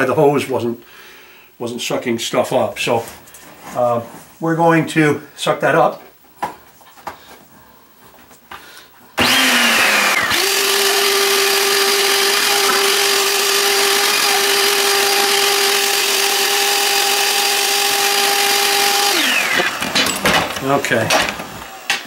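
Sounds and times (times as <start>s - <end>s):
vacuum cleaner motor whine: 9.2s - 22.0s.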